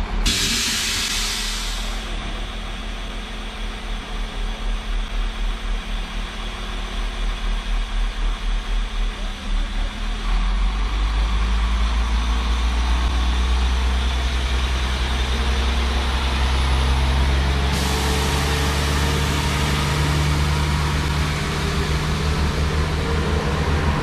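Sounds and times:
train diesel engines revving: 0.0 - 24.0.

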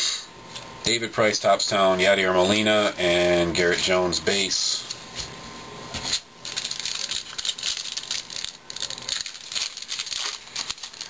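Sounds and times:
cards rustling and scraping: 6.0 - 11.0.

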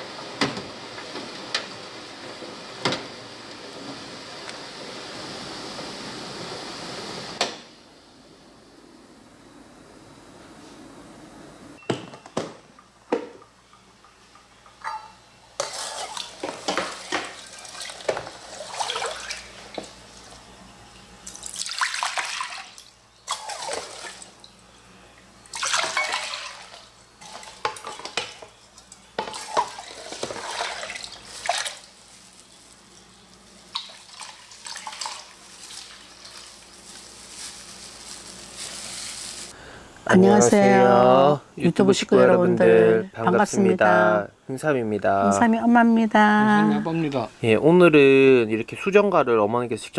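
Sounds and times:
metal kitchenware clinking: 25.7 - 26.5.

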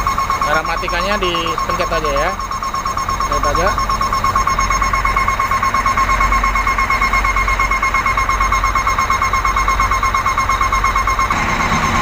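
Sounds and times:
rapid warning buzzer beeps: 0.0 - 12.0
truck diesel engine idling: 0.0 - 12.0.

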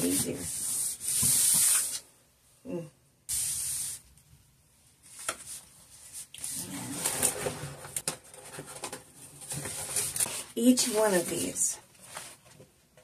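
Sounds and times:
paper sheet rustling: 5.0 - 12.6.

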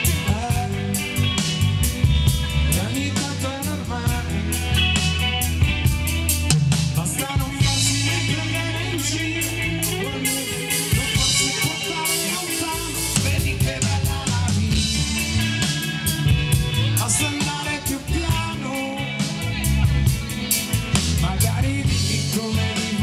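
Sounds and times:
drum kit steady beat: 0.0 - 23.0
electric bass: 0.0 - 23.0
electric guitars: 0.0 - 23.0.

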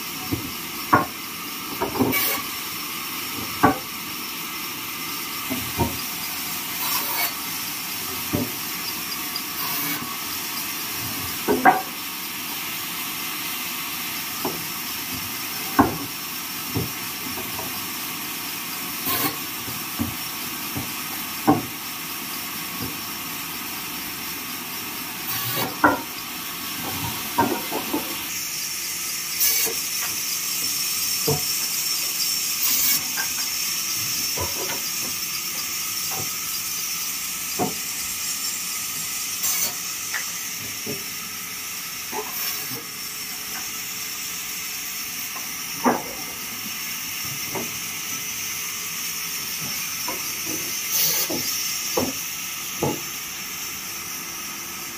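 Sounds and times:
steady hiss: 0.1 - 54.9.

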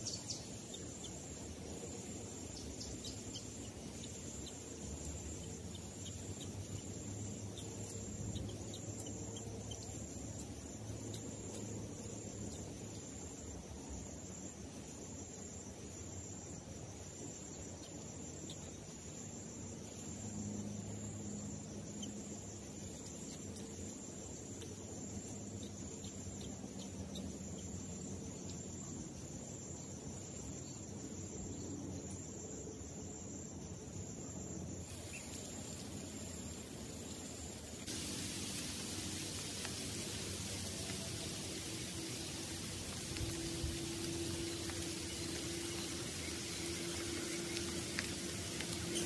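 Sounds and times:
insects chirring: 0.0 - 49.0
low outdoor hiss: 0.0 - 49.0
falling rain: 37.8 - 49.0.

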